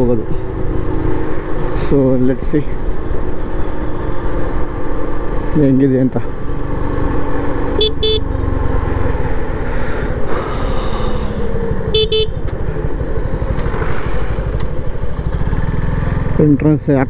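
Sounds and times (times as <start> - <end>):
motorcycle engine running: 0.0 - 17.0
vehicle horn beeps: 7.8 - 8.3, 10.8 - 12.5.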